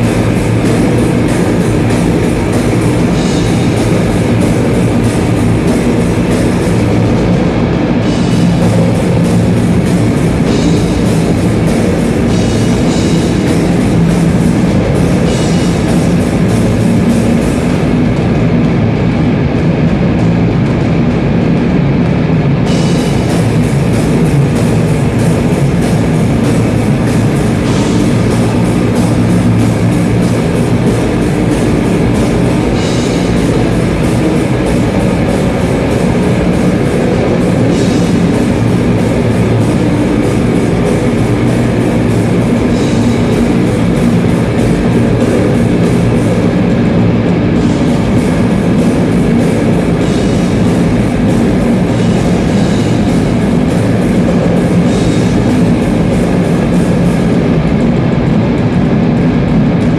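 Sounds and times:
death metal band playing: 0.0s - 59.9s.

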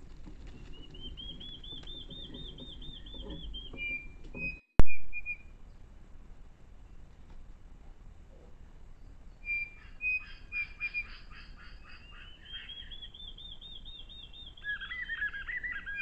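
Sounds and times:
bird whistling song: 0.5s - 5.6s, 9.3s - 16.0s.

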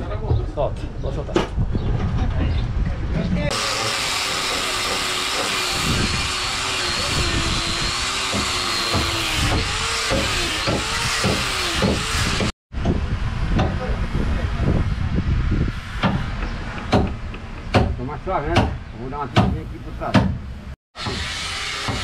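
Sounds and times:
angle grinder sanding wood: 3.5s - 12.5s, 21.0s - 22.0s.

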